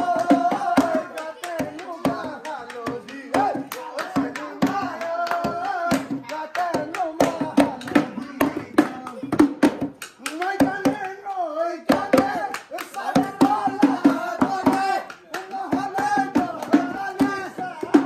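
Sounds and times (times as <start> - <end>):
hand claps: 0.0 - 18.0
person singing: 0.0 - 18.0.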